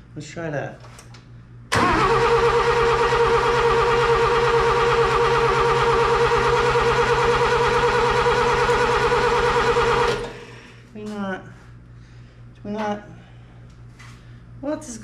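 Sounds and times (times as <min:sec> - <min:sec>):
starter cranking engine: 0:01.7 - 0:10.4.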